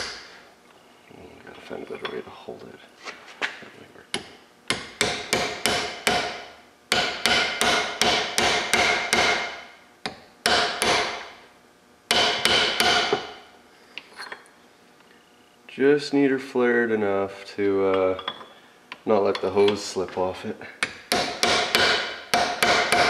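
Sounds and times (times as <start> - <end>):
hammer striking metal tool: 4.2 - 9.6, 10.4 - 11.2, 12.1 - 13.3, 21.1 - 23.0.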